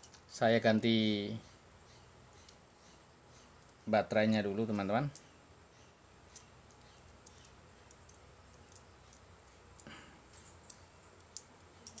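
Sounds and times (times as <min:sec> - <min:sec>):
small metal clicks: 0:00.0 - 0:00.3, 0:06.2 - 0:12.0.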